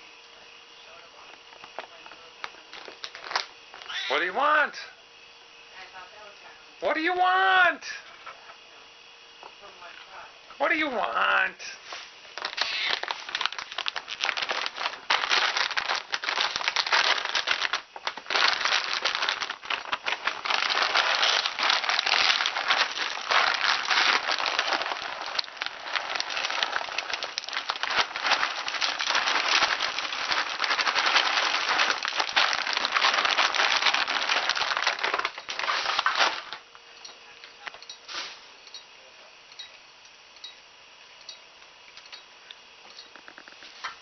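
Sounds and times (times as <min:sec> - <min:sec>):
plastic bag crinkling: 0:01.5 - 0:04.1, 0:12.3 - 0:36.7.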